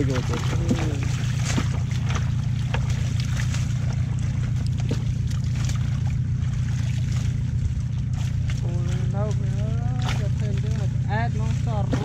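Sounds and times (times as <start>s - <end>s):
net splashing and rustling: 0.0s - 8.6s
low motor drone: 0.0s - 12.0s.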